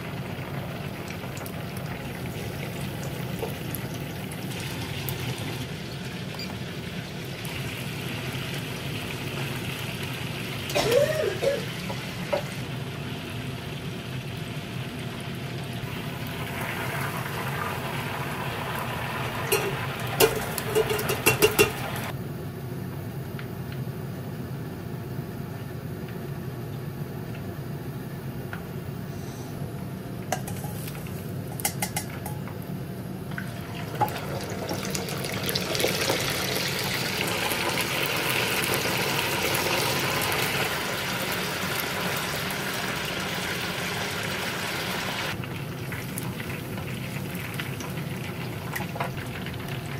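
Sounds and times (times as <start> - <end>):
oil bubbling and sizzling: 0.0 - 22.2, 29.6 - 49.9
strainer basket clinking on pot: 19.5 - 21.8.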